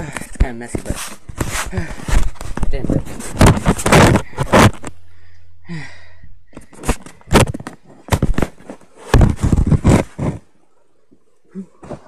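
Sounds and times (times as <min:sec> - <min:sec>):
phone being handled and knocked: 0:03.3 - 0:04.9, 0:06.6 - 0:08.6.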